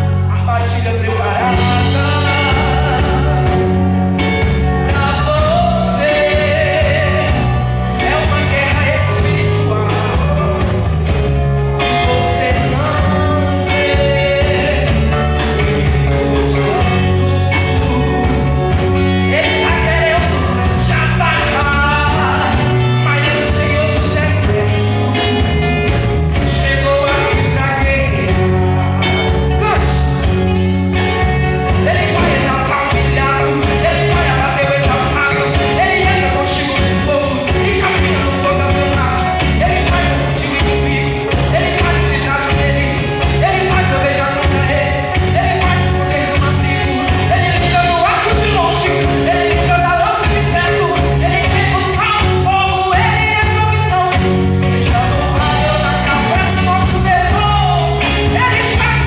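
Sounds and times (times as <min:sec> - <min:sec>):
gospel band playing: 0:00.0 - 0:59.0
steady drum beat: 0:01.2 - 0:59.0
woman singing lead: 0:11.8 - 0:30.2, 0:31.0 - 0:59.0.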